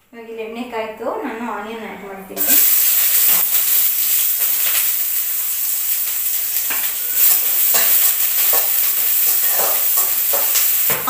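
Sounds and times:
onion sizzling in hot oil: 2.4s - 11.0s
spatula stirring in a pan: 6.2s - 11.0s.

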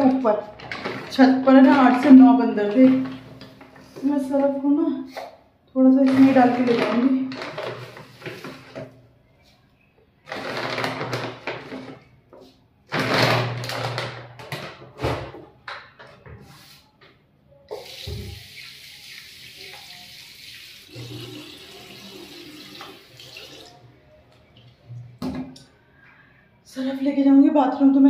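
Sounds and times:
rustling plastic packet: 6.1s - 8.9s, 10.3s - 12.1s
tap water running into basin: 17.7s - 23.8s.

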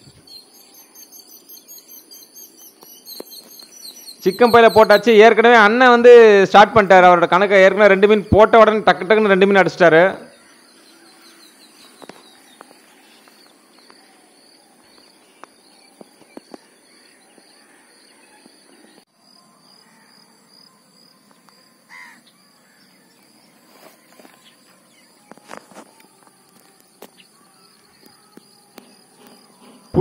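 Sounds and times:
insect chirping: 0.0s - 5.2s, 10.3s - 30.0s
crow cawing: 17.0s - 18.5s, 19.8s - 20.2s, 21.9s - 22.9s.

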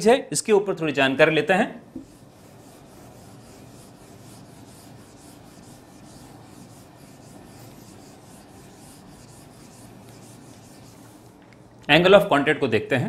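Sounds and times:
eraser swishing on whiteboard: 2.0s - 11.4s.

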